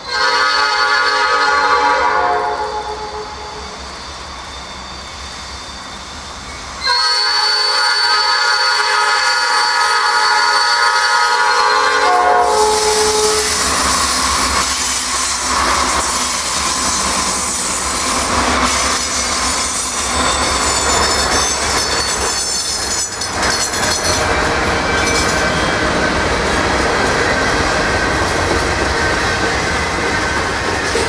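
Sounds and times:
train horn chord: 0.0s - 3.6s, 6.8s - 13.7s
diesel locomotives passing: 0.0s - 31.0s
freight cars rolling on rails: 9.8s - 31.0s.

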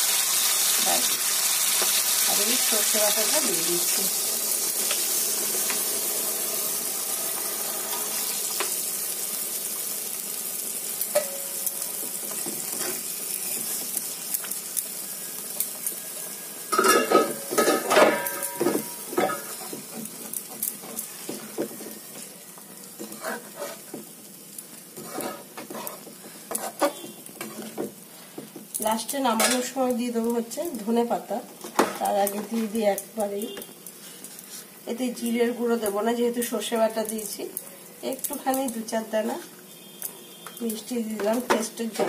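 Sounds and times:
curry sizzling in oil: 0.0s - 42.0s
metal spatula scraping pan: 23.0s - 23.9s, 25.0s - 27.7s.

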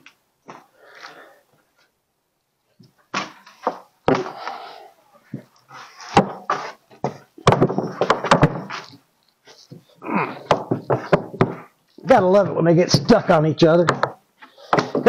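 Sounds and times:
wood knocking and scraping: 2.8s - 4.5s, 5.2s - 12.2s, 13.8s - 15.0s
sharp wooden thunks: 3.1s - 4.4s, 6.1s - 9.0s, 10.3s - 11.7s, 13.9s - 15.0s.

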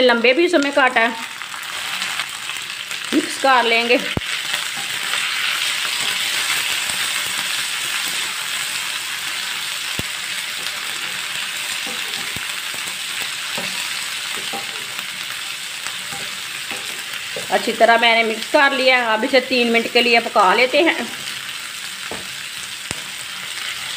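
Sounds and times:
vegetables sizzling in hot oil: 0.0s - 23.9s.

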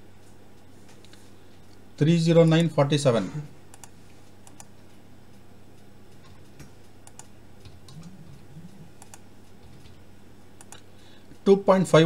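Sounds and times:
low steady hum: 0.0s - 12.0s
computer keyboard keystrokes: 3.7s - 4.7s, 7.0s - 8.1s, 9.0s - 9.2s.

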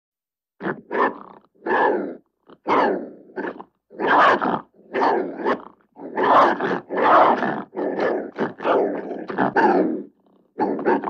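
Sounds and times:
dog growling: 0.8s - 11.0s.

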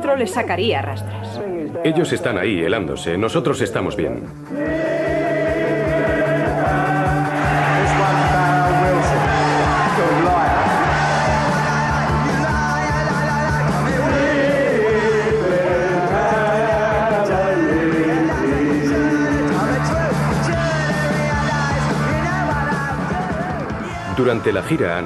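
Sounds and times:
punk rock band playing: 4.3s - 25.0s
person singing and yelling: 4.5s - 24.6s.

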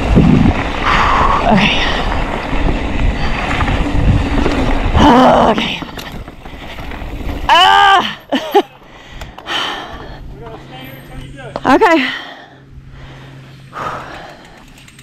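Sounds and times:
wind rush: 0.0s - 7.5s
bike tyre noise: 0.0s - 15.0s.

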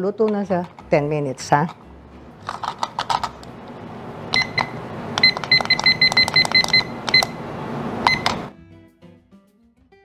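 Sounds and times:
low steady hum: 0.0s - 8.5s
kitchen timer beeps: 4.3s - 8.5s.

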